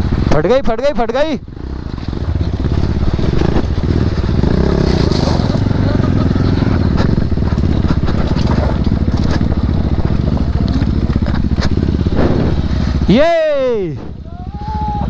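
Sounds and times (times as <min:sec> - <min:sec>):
motorcycle engine running under load: 0:00.0 - 0:00.6, 0:01.2 - 0:13.2
tyres crunching over loose stones: 0:02.1 - 0:05.8, 0:06.8 - 0:12.5.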